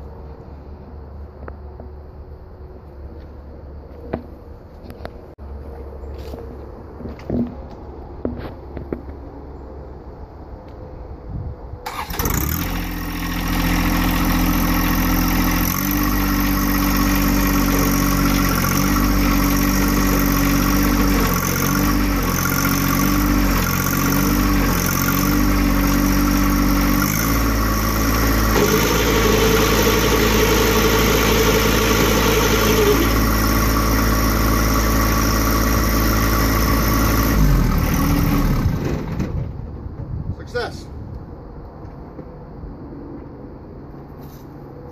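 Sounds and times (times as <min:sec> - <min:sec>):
tractor diesel engine running: 0:11.8 - 0:39.9
high-pitched whine: 0:28.5 - 0:34.9.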